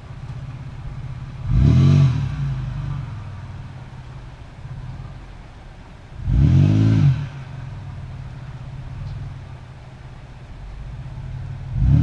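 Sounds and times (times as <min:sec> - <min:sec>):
engine revving and idling: 0:00.0 - 0:03.9, 0:06.2 - 0:09.5, 0:10.7 - 0:12.0.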